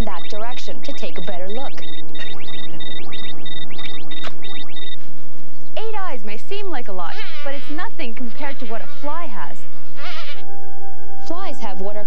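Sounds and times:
short high electronic beeps: 0.0 - 5.0.

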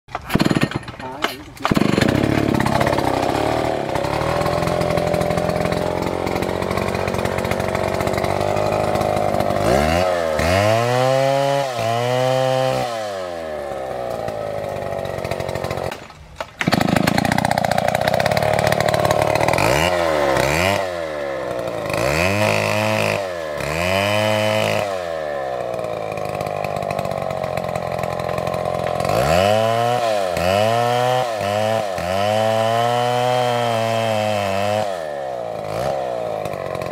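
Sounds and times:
chainsaw cutting tree trunk: 0.1 - 36.9
chainsaw revving: 0.1 - 36.9.

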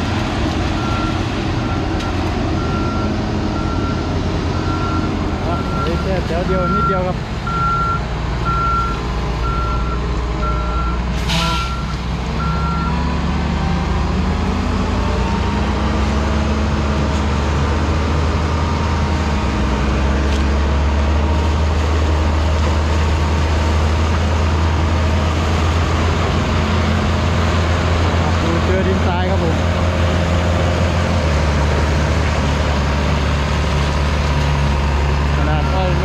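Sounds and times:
heavy diesel engines running: 0.0 - 36.0
reversing alarm beeping: 0.8 - 13.1.

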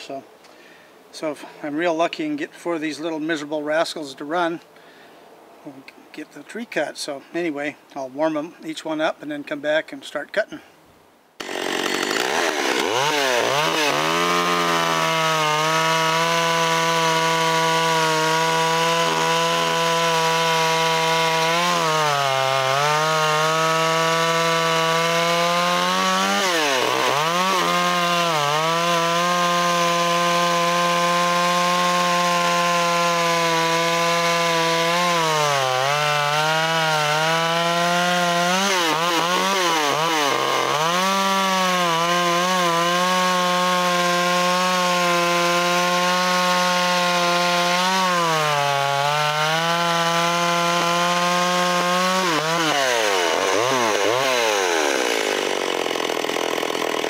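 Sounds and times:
chainsaw cutting through log: 11.4 - 57.0.

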